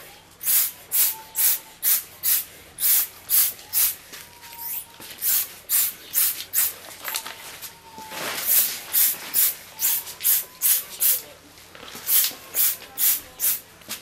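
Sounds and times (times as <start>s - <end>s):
short hissing bursts: 0.4s - 4.0s, 4.7s - 6.8s, 8.4s - 11.2s, 12.0s - 13.6s.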